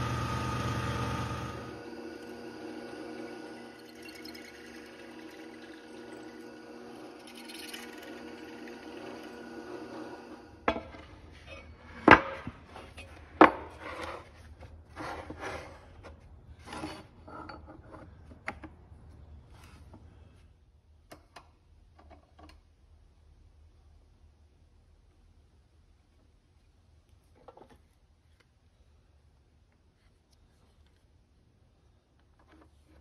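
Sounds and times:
drill press motor running: 0:00.0 - 0:10.7
rubbing and scraping: 0:10.8 - 0:18.2.

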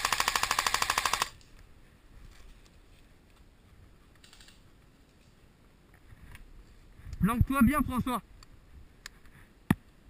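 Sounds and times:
airsoft gun full-auto burst: 0:00.0 - 0:01.4.

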